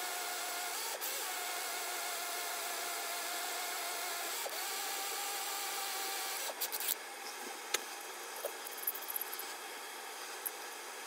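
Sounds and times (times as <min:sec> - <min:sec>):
small power drill running: 0:00.0 - 0:07.0.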